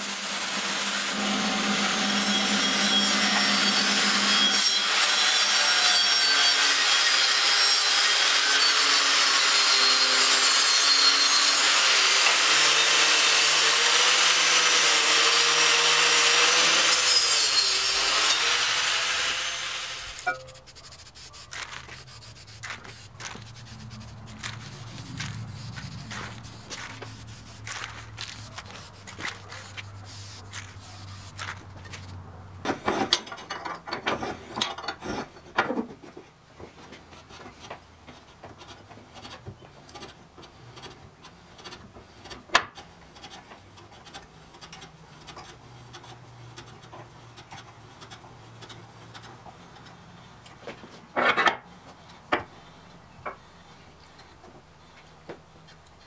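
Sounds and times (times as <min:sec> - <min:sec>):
angle grinder grinding steel: 0:00.0 - 0:32.2.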